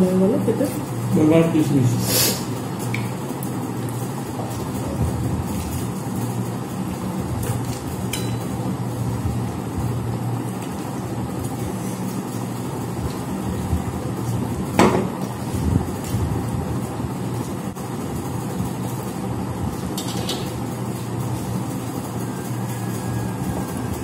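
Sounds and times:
metal bowl clinking on plate: 0:08.1 - 0:08.5.

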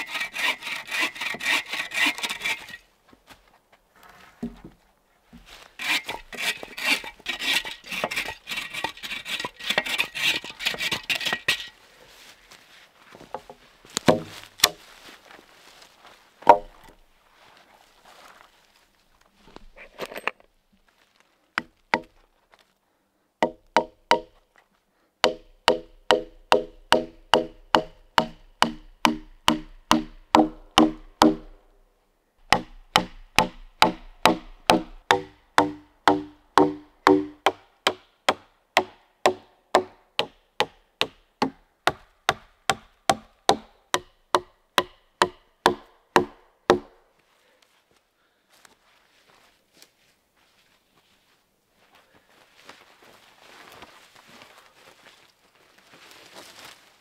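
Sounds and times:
hammer driving nails into wood: 0:25.2 - 0:31.5, 0:32.5 - 0:46.9.

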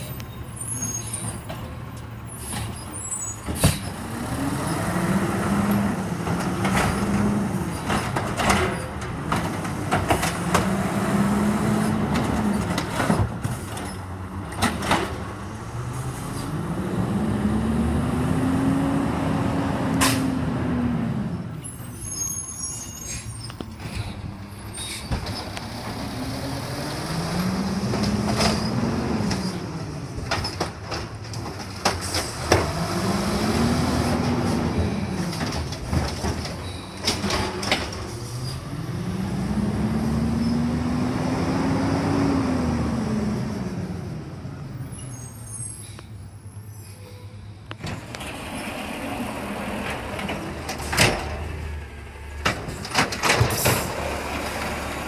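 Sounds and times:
garbage truck engine revving: 0:04.0 - 0:08.4, 0:09.1 - 0:13.0, 0:14.7 - 0:21.5, 0:25.6 - 0:29.4, 0:32.3 - 0:36.5, 0:37.1 - 0:44.4
carts and arm clanking: 0:47.7 - 0:55.0.

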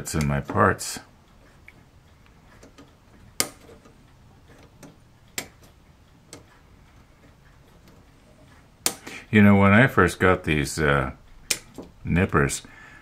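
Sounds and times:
nippers snipping plastic clicks: 0:11.4 - 0:12.0.

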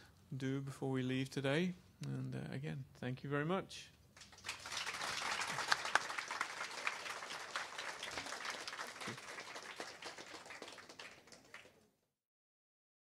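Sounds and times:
audience applauding: 0:04.2 - 0:11.9.

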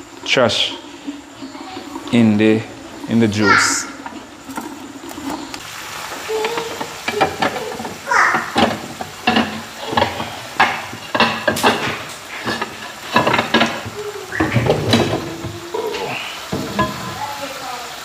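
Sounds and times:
chicken frying in oil: 0:00.0 - 0:18.0
glass lid clattering: 0:06.4 - 0:17.2.

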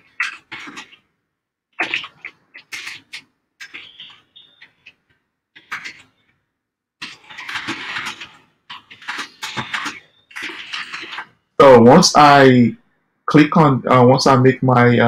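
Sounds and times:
keyboard typing: 0:00.0 - 0:01.2, 0:01.8 - 0:11.6.

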